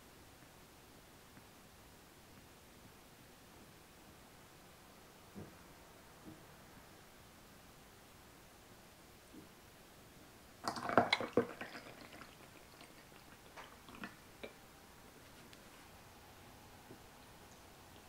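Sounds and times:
water pouring: 0:10.6 - 0:14.6.

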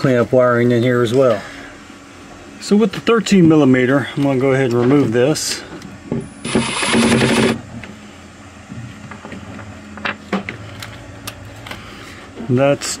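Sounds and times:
steady low hum: 0:00.0 - 0:13.0
socket tool rapid clicking: 0:06.4 - 0:07.6.

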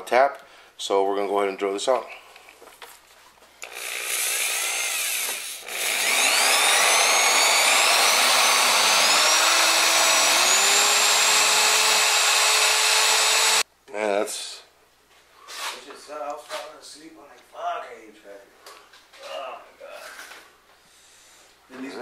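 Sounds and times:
power drill boring into metal: 0:03.6 - 0:13.6.

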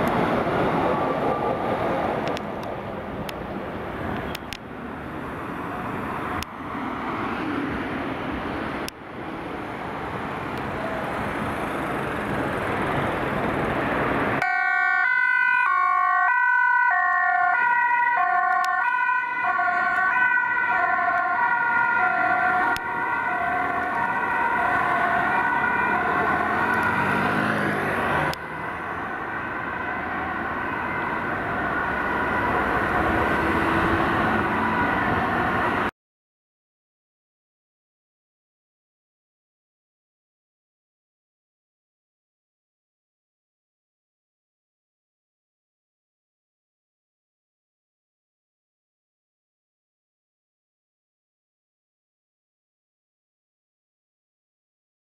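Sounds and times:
city traffic: 0:00.0 - 0:36.0
two-tone ambulance siren: 0:00.5 - 0:02.2, 0:14.4 - 0:35.9.

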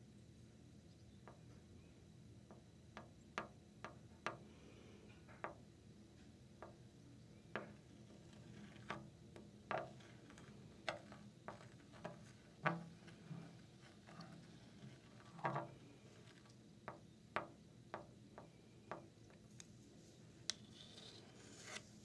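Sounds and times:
faint low hum: 0:00.0 - 0:22.0.

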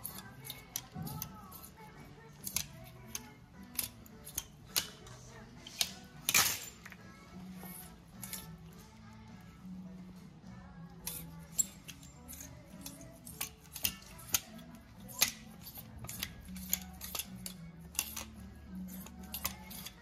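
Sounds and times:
plastic hangers clicking on metal rail: 0:02.4 - 0:07.0, 0:11.1 - 0:20.0.

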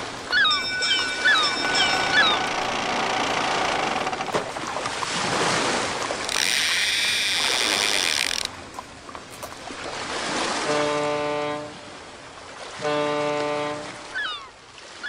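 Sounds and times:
rushing wash like surf: 0:00.0 - 0:03.3, 0:03.9 - 0:06.6, 0:07.4 - 0:15.0
fishing reel drag ratchet buzzing: 0:06.2 - 0:08.5.

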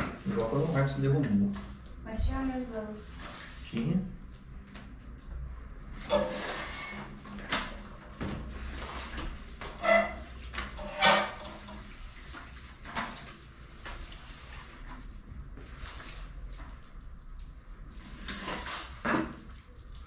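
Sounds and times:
squeegee swishing on wet tiles: 0:02.9 - 0:03.8, 0:10.2 - 0:20.0.

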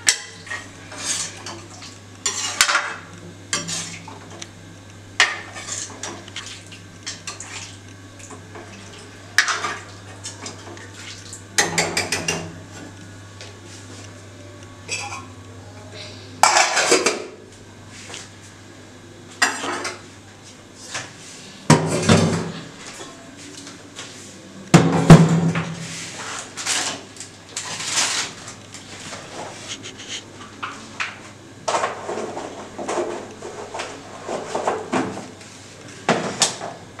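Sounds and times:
low steady hum: 0:00.0 - 0:26.2.

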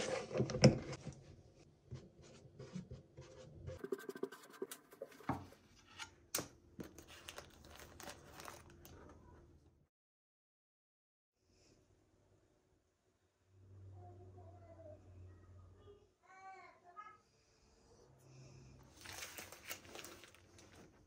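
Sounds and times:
marker pen scratching on plastic: 0:02.3 - 0:05.3.

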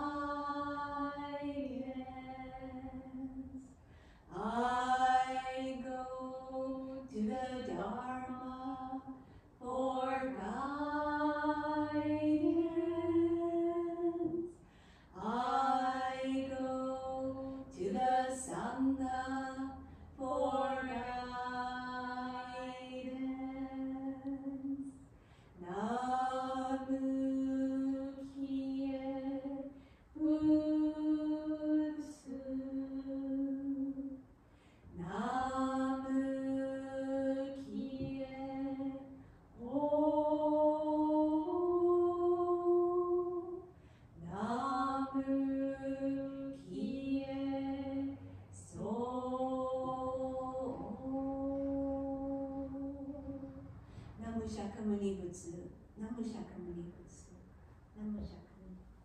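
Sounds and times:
breaths: 0:03.6 - 0:04.4, 0:09.2 - 0:09.6, 0:14.5 - 0:15.2, 0:19.8 - 0:20.2, 0:24.9 - 0:25.6, 0:29.7 - 0:30.2, 0:34.3 - 0:35.0, 0:43.7 - 0:44.2, 0:53.7 - 0:54.2.

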